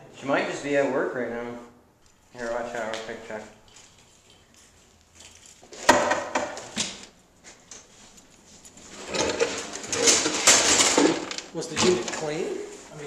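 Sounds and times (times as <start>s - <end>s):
rustling and scuffing: 2.0s - 5.9s, 6.6s - 9.8s, 11.9s - 13.0s.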